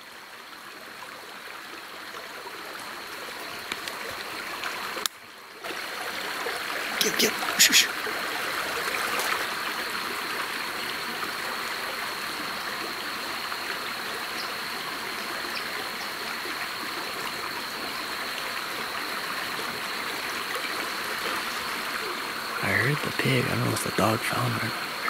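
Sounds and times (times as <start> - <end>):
stream running over stones: 0.0 - 25.0.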